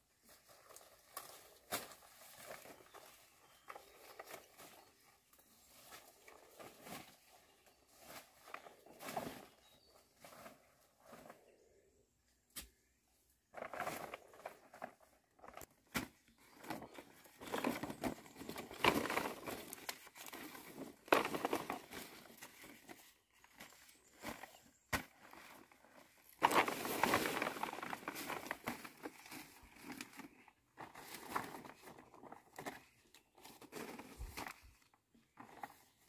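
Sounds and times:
leaves rustling: 0:25.2 - 0:31.9.

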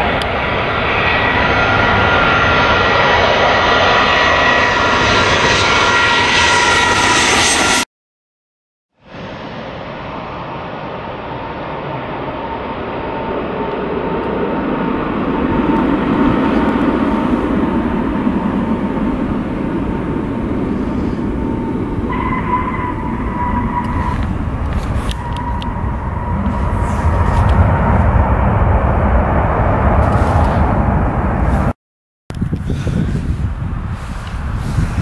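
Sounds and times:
jet engines roaring with whine: 0:00.0 - 0:07.9, 0:09.0 - 0:35.0
low rumble: 0:09.1 - 0:35.0.

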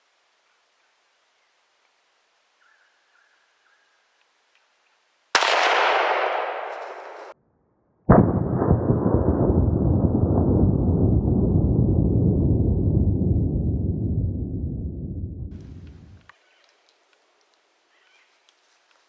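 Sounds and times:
rifle shot echoing: 0:05.4 - 0:07.4, 0:08.1 - 0:12.9
loud low rumbling noise: 0:08.1 - 0:16.2.

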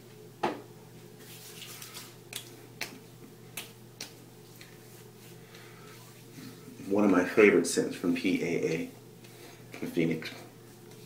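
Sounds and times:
hands slapping skin: 0:01.9 - 0:04.8.

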